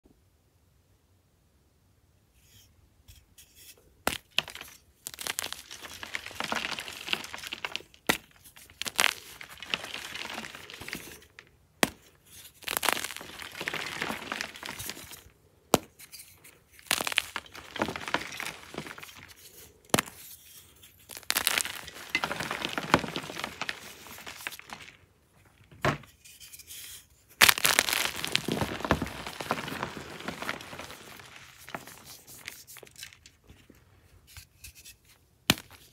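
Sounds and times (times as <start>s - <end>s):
chalk blocks cracking: 4.1s - 25.1s, 26.0s - 33.6s, 34.3s - 35.9s
chalk crunching into powder: 16.8s - 24.7s.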